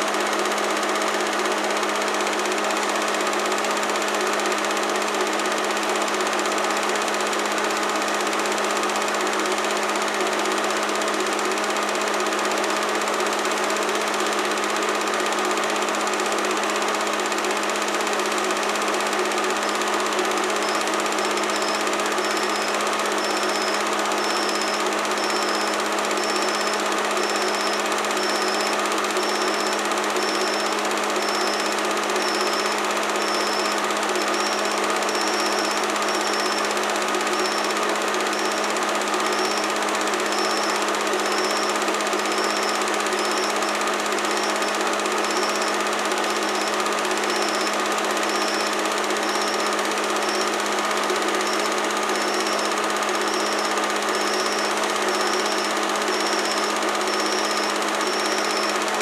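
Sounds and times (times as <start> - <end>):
film projector running: 0.0 - 59.0.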